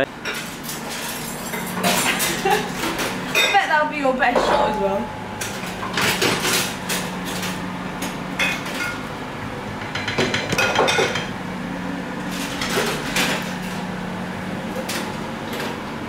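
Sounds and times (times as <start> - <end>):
low steady hum: 0.2 - 15.7
dishes and cutlery clattering: 0.3 - 3.6, 9.8 - 11.3.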